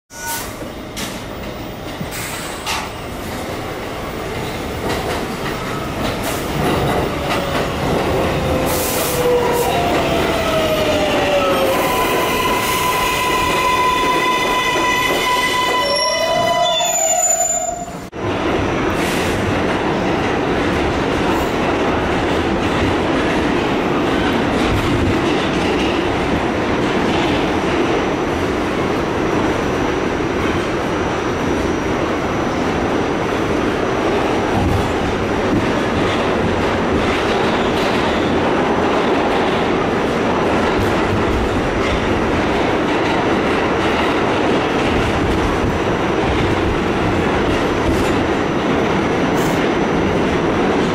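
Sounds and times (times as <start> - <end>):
wheel and rail noise with squeal: 0.1 - 18.1, 30.4 - 32.8
rumble inside moving train car: 0.6 - 11.2, 17.6 - 50.9.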